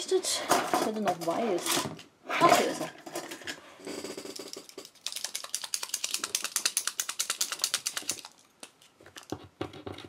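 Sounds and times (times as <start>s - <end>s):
paint marker ball rattling: 4.0s - 9.4s.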